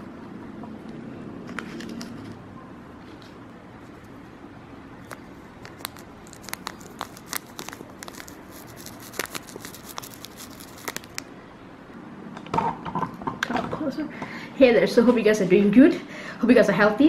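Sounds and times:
foil sachet crinkling: 5.0s - 11.3s.

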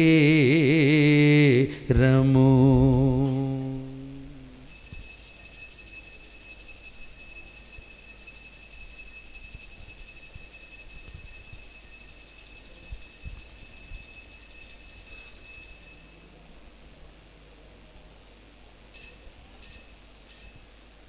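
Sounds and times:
bell ringing continuously: 4.7s - 16.7s, 18.9s - 21.0s.

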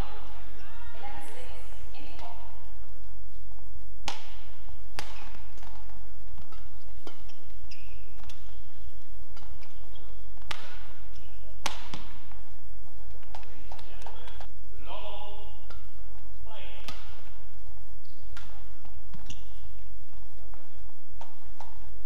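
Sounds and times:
racket hitting shuttlecock: 4.0s - 12.5s, 13.1s - 14.5s, 15.6s - 16.2s, 16.8s - 17.4s, 18.0s - 19.9s, 20.5s - 21.9s
shoes squeaking on court: 4.1s - 14.5s, 18.0s - 22.0s.

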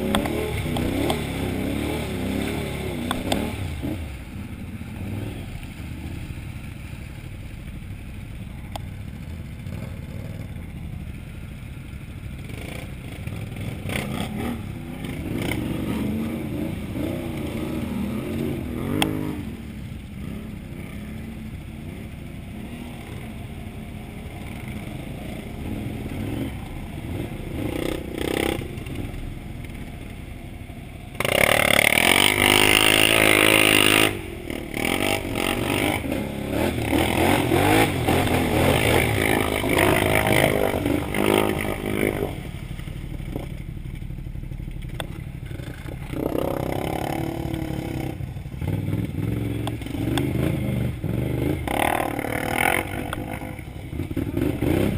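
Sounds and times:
engine running through mud: 0.0s - 54.9s.

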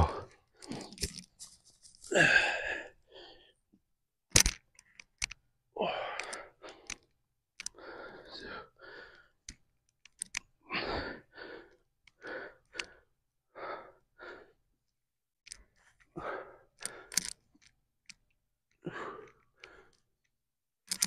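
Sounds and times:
man breathing hard: 0.0s - 1.0s, 2.0s - 3.6s, 5.8s - 9.4s, 10.7s - 14.6s, 16.1s - 17.4s, 18.8s - 20.0s.

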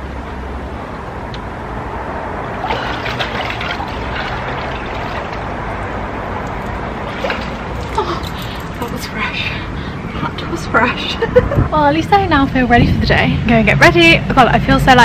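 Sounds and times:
water sloshing and trickling: 2.4s - 9.4s
water splashes: 2.5s - 8.6s.

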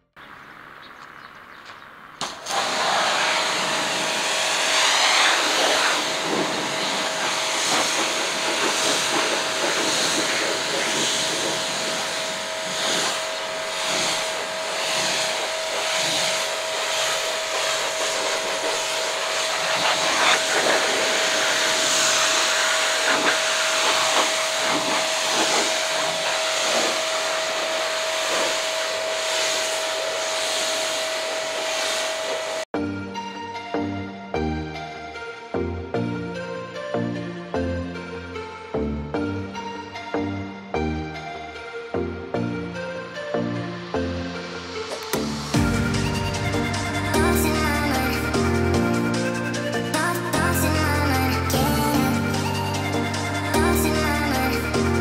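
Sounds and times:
pressure washer jet hissing: 2.2s - 32.7s.

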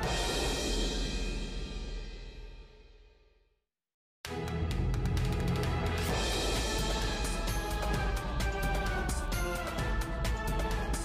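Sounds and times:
background music with beat: 4.3s - 11.0s.

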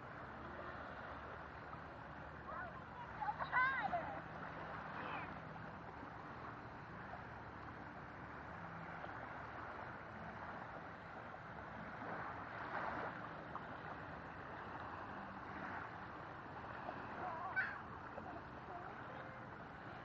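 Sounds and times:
small waves washing: 0.0s - 20.0s
wind on the shore: 0.0s - 20.0s
gulls crying: 16.8s - 20.0s.

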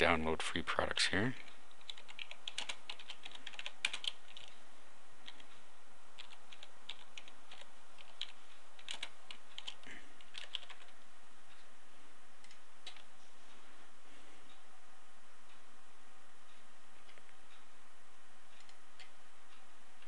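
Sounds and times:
keyboard typing: 1.4s - 4.5s, 5.2s - 5.5s, 6.2s - 11.0s, 12.4s - 13.1s.

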